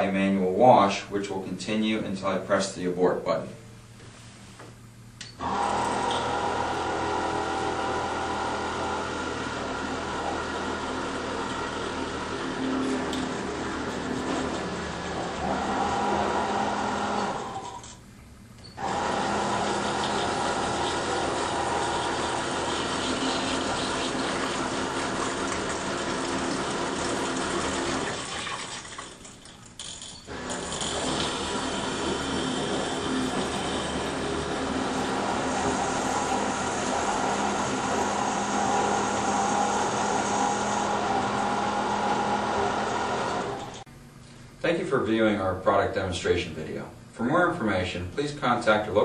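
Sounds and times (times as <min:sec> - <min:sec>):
pump humming: 0:05.0 - 0:18.0, 0:18.6 - 0:44.5
drain suction running: 0:05.4 - 0:17.8, 0:18.8 - 0:43.9.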